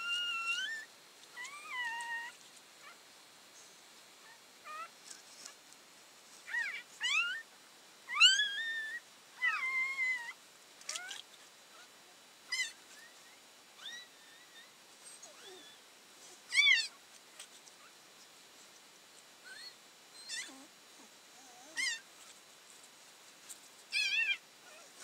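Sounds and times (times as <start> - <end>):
newborn puppy squealing: 0.0 - 2.4, 6.5 - 7.4, 8.1 - 11.2, 12.5 - 13.2, 13.8 - 15.8, 16.5 - 17.0, 19.4 - 20.7, 21.5 - 22.0, 23.9 - 24.4.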